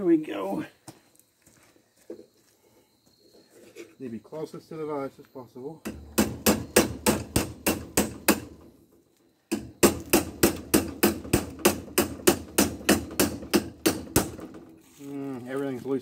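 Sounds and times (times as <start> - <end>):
hammer striking metal pipe: 5.8 - 8.5, 9.5 - 14.6.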